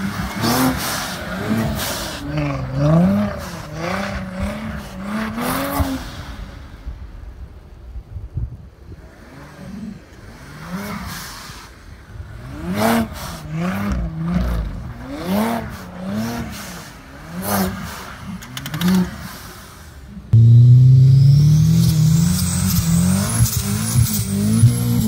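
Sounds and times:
car engine revving: 0.0 - 6.6, 20.4 - 25.0.

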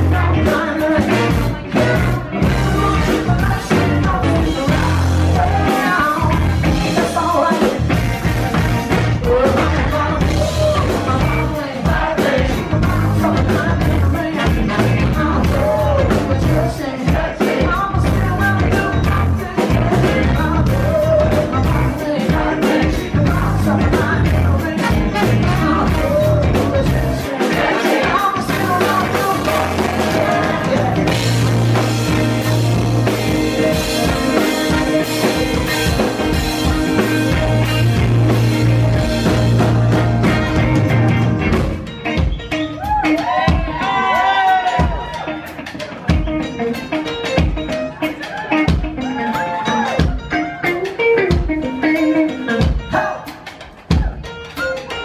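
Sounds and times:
man singing: 0.0 - 42.2
drum kit: 0.0 - 55.0
electric guitar: 0.0 - 55.0.

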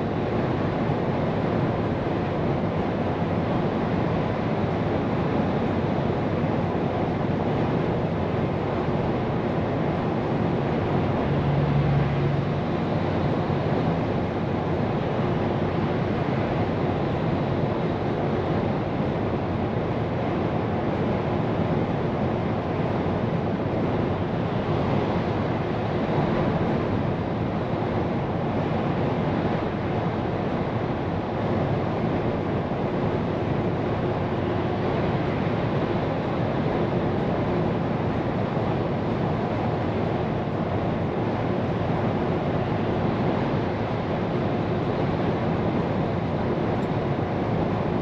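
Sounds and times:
truck driving noise from cab: 9.4 - 16.6.

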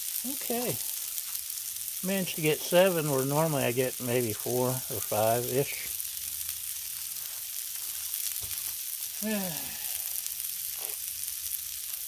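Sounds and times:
meat sizzling on griddle: 0.0 - 12.0.

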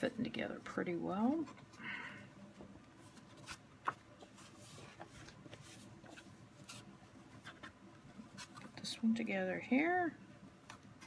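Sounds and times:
paper rustling and tapping: 2.6 - 8.8.

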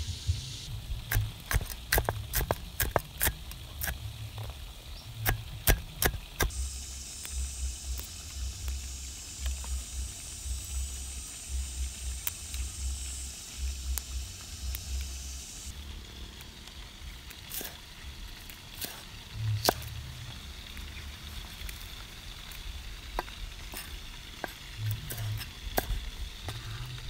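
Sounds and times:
steady high hiss: 0.0 - 27.0
cleaver chopping on wooden board: 1.1 - 4.0, 5.2 - 6.5
low rumble: 19.2 - 27.0.

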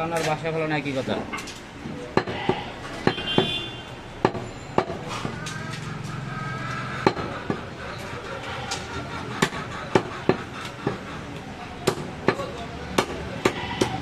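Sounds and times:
knife chopping meat and bone: 1.8 - 3.5, 4.2 - 5.4, 7.0 - 7.8, 8.7 - 14.0.

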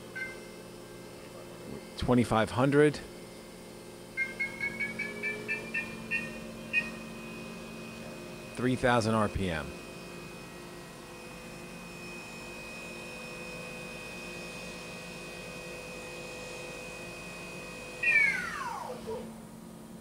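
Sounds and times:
machine low hum: 0.0 - 20.0
machine spindle whine: 0.0 - 20.0.

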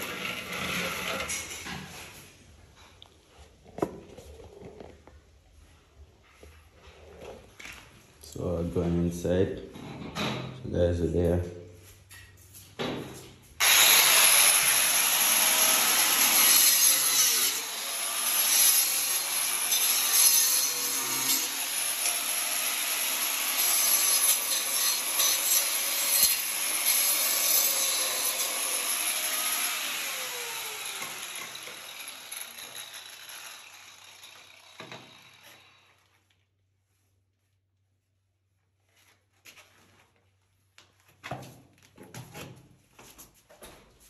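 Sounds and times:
angle grinder cutting: 0.0 - 1.7, 13.6 - 36.0.

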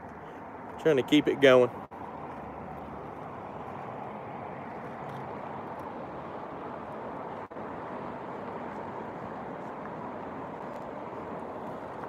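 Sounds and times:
outdoor background noise: 0.0 - 12.0.

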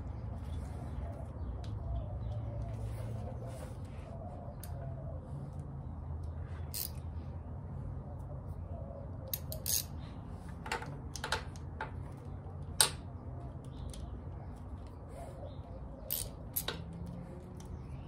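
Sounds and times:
ratchet clicking on bolts: 6.7 - 7.0, 9.3 - 9.9, 16.1 - 16.8.

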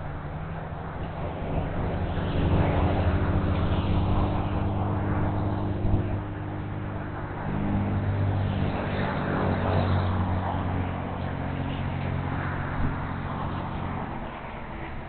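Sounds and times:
low mechanical rumble: 0.0 - 15.0
low tonal hum: 0.0 - 15.0.

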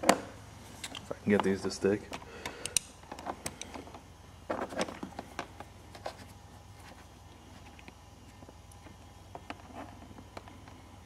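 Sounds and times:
probe leads clicking and rustling: 0.0 - 6.3.

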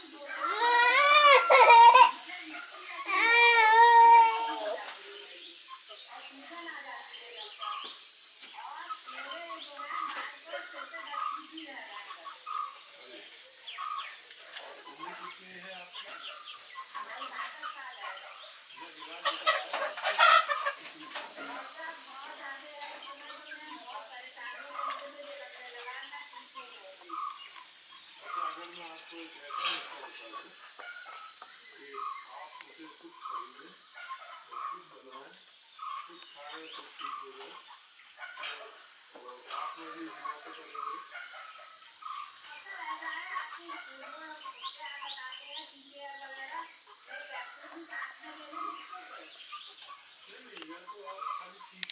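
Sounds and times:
birds chirping: 0.0 - 41.2
insects droning: 0.0 - 51.9.

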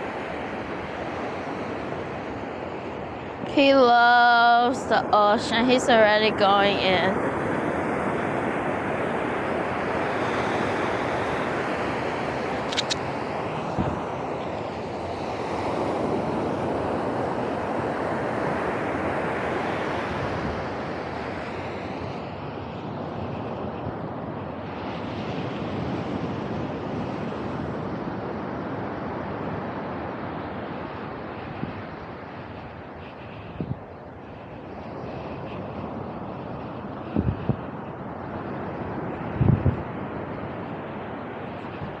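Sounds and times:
ocean surf breaking: 0.0 - 42.0
wind on microphone: 0.0 - 42.0
short sharp clicks: 12.7 - 13.0.

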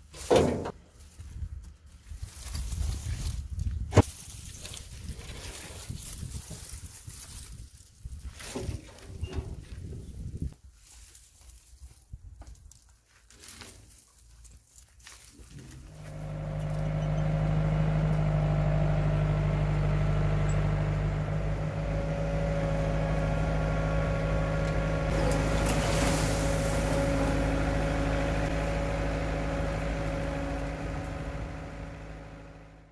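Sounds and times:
rough rustling noise: 1.0 - 16.2
diesel engine running: 15.7 - 32.9.

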